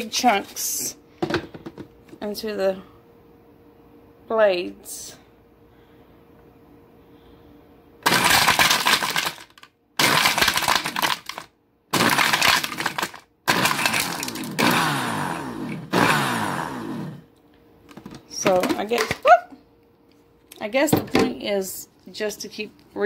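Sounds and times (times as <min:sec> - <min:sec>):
blender crushing ice: 0:08.0 - 0:17.3
ice clattering against jar: 0:08.1 - 0:14.5.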